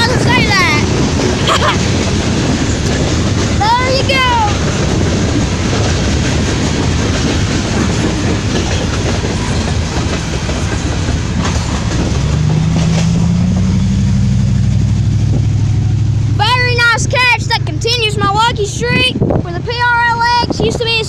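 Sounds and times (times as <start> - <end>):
train cars rumbling past: 0.0 - 21.0
wheels clicking over rail joints: 0.0 - 21.0
low engine hum: 10.3 - 21.0.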